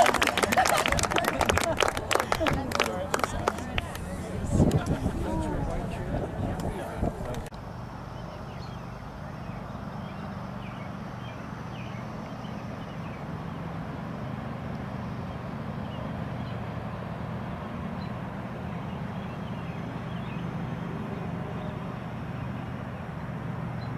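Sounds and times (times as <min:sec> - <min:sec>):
low outdoor hum: 0:00.0 - 0:23.9.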